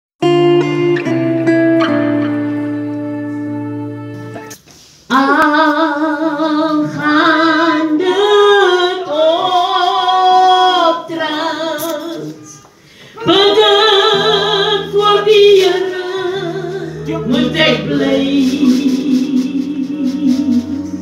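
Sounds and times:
woman singing unaccompanied: 5.1 - 21.0.

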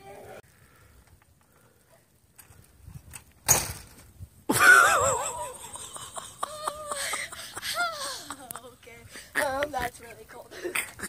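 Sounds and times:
breathless wheezy laughter: 4.5 - 8.6.

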